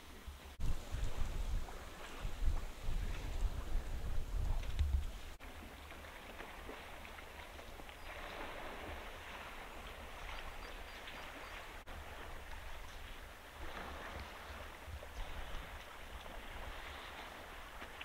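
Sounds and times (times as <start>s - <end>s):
water splashing and trickling: 0.0s - 18.0s.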